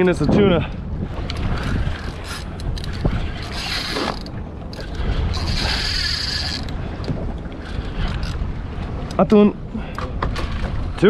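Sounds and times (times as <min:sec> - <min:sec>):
wind rumble: 0:00.0 - 0:11.0
fishing reel gears whirring: 0:01.1 - 0:08.5.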